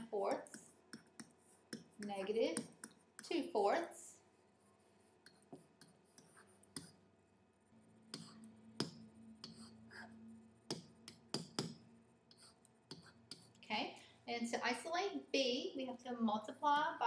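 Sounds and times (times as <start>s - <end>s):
low room noise: 0.0s - 17.0s
stylus tapping on tablet: 0.2s - 3.3s, 8.2s - 9.6s, 10.7s - 11.9s.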